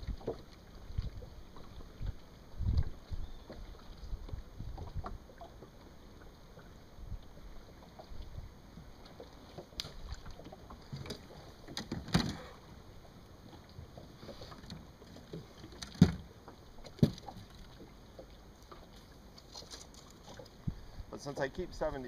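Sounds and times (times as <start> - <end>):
dull knocks on boat deck: 17.0 - 17.2.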